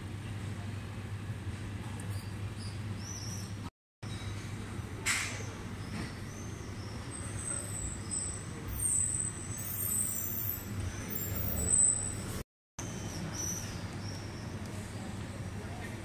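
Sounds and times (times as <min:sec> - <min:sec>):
faint high squeaks: 0:02.0 - 0:04.3
traffic rumble: 0:04.4 - 0:16.0.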